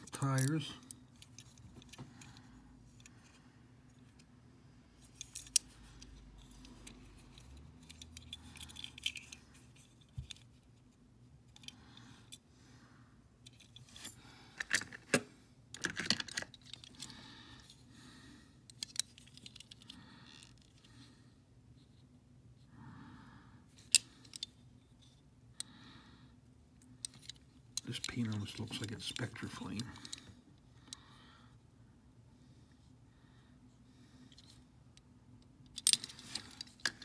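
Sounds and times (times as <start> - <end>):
toy car clicking and rattling: 5.1 - 10.4, 35.7 - 37.0.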